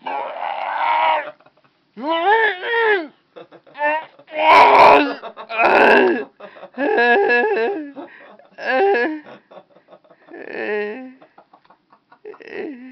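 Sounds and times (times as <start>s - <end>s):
person imitating vomiting: 0.0s - 1.4s, 2.0s - 3.1s, 3.8s - 7.9s, 8.6s - 9.2s, 10.3s - 11.2s, 12.3s - 12.9s.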